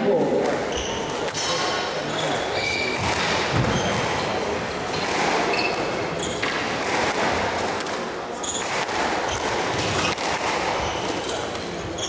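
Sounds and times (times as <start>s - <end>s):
squash ball hitting rackets and walls: 0.4s - 12.0s
shoes squeaking on wooden floor: 0.7s - 6.6s, 10.8s - 12.0s.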